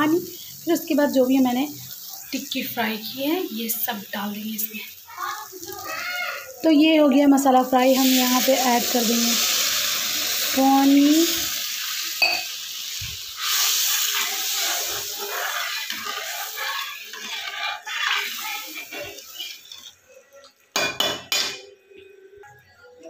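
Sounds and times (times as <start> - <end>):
sizzling hiss: 0.0 - 21.4
spoon clanking against pan: 12.2 - 12.5
metal skimmer scraping gravy: 13.4 - 20.0.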